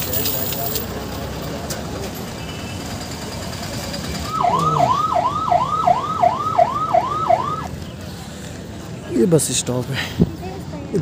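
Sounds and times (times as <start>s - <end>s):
street traffic: 0.0s - 11.0s
electronic siren wailing: 4.2s - 7.7s.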